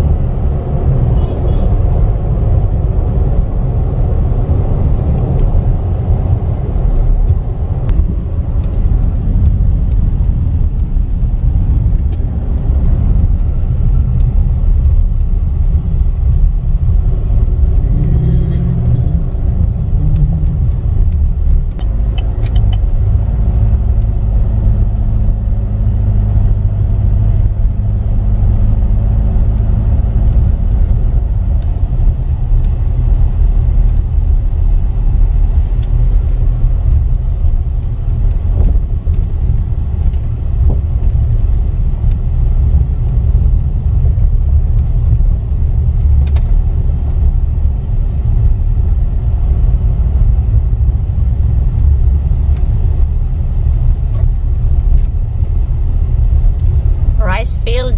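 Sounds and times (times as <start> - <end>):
car engine and tyres rumbling: 0.0 - 57.9.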